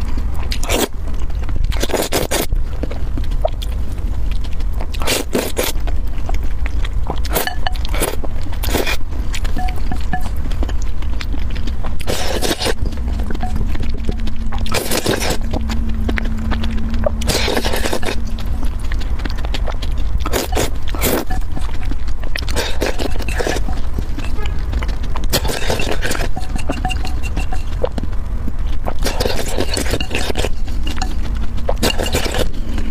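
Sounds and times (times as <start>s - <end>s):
steady low hum: 0.0s - 32.9s
noodles slurped: 0.5s - 0.9s, 1.7s - 2.5s, 4.9s - 5.8s, 7.2s - 10.9s, 11.9s - 24.6s, 25.3s - 28.0s, 28.8s - 32.9s.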